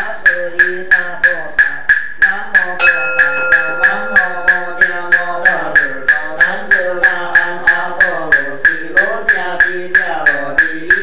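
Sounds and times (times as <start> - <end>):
person chanting: 2.2 - 11.0.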